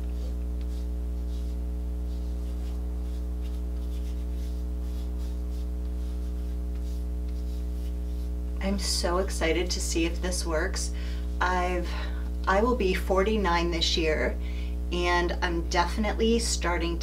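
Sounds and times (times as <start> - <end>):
pad rubbing on skin: 0.0 - 8.6
low electrical hum: 0.0 - 17.0.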